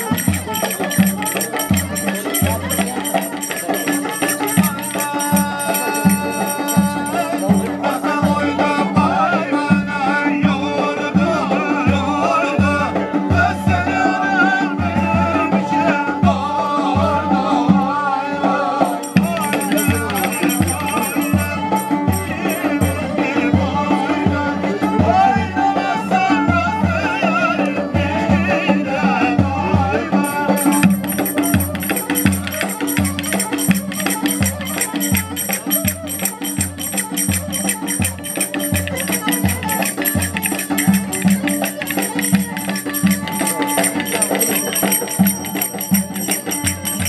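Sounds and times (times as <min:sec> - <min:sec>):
wavering melody: 0:00.0 - 0:08.4, 0:18.9 - 0:23.4, 0:30.2 - 0:47.0
rattling percussion: 0:00.0 - 0:09.1, 0:18.8 - 0:24.3, 0:30.2 - 0:47.0.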